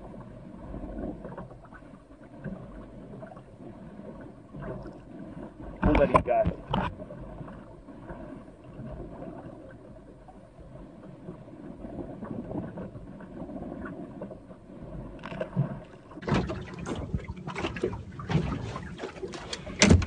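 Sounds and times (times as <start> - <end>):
water lapping against boat hull: 0.0 - 20.0
wind: 0.0 - 20.0
knocks and rustles: 16.2 - 20.0.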